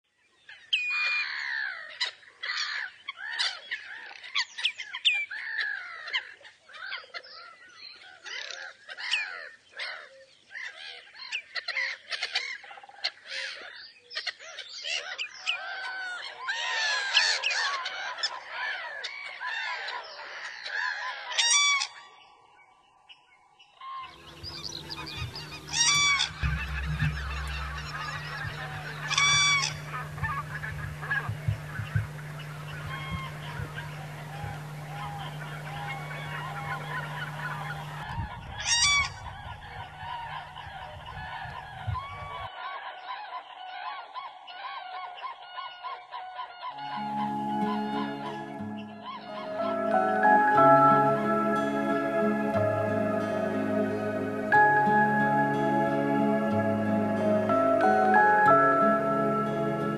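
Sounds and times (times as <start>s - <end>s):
geese honking: 24.1s - 42.5s, 45.9s - 59.9s
steady low hum: 24.1s - 42.5s.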